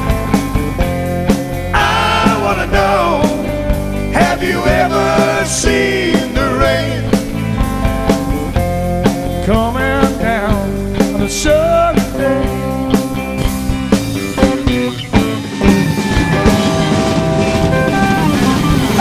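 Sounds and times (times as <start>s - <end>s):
drums: 0.0s - 19.0s
electric guitar bending notes: 11.6s - 19.0s.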